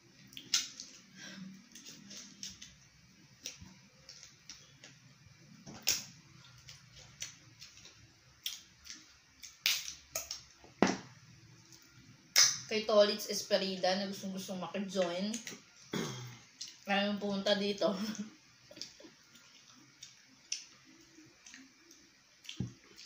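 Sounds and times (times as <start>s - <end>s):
chewing and mouth clicks: 0.2s - 1.0s, 18.7s - 23.0s.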